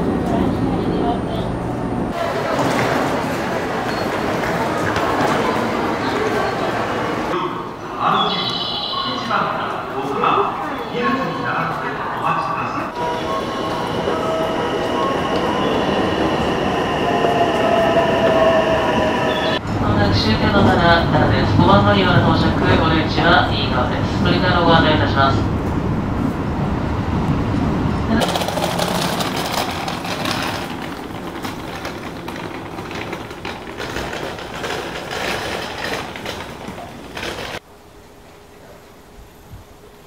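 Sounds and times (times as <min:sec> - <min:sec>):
train rushing noise: 0:00.0 - 0:37.7
train carriage rumble: 0:00.0 - 0:40.0
wheels squealing: 0:01.0 - 0:07.4, 0:12.9 - 0:19.6, 0:28.2 - 0:37.6
suitcase wheels rattling on pavement: 0:28.2 - 0:37.6.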